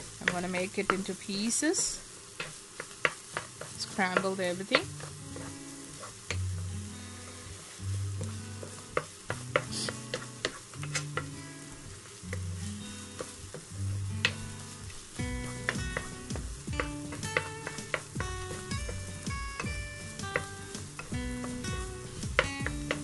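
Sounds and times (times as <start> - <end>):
food sizzling: 0.0 - 23.0
spatula scraping frying pan: 0.0 - 23.0
spatula taps on pan: 8.6 - 10.6, 15.6 - 19.0, 22.3 - 23.0
low background music: 9.5 - 23.0.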